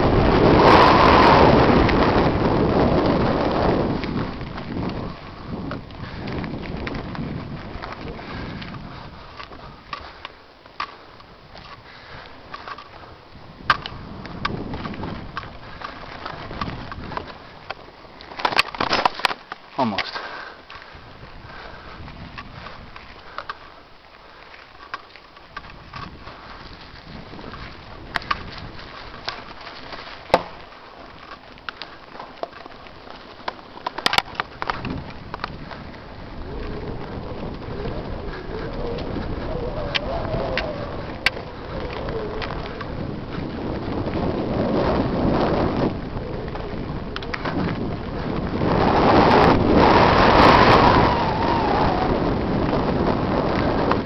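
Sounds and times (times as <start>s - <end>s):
bike tyre rumble: 0.0s - 54.0s
wind noise: 0.0s - 54.0s
bike clicks and knocks: 3.9s - 20.8s, 22.2s - 23.8s, 24.5s - 36.0s, 46.5s - 48.5s.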